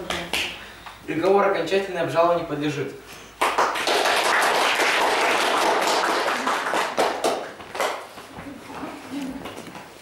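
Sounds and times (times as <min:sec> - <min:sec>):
audience applauding: 0:03.4 - 0:08.0.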